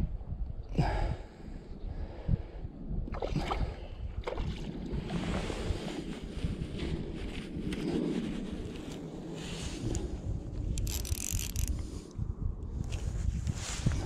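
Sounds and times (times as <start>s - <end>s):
wind buffeting microphone: 0.0s - 14.0s
fishing rod handling clicks: 10.6s - 12.2s.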